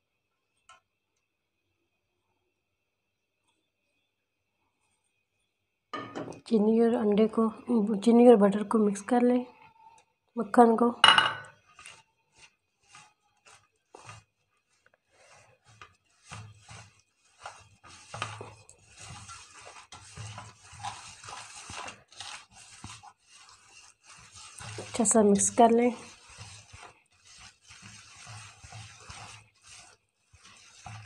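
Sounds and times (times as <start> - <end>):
sugar scraping in metal bowl: 10.5 - 31.0.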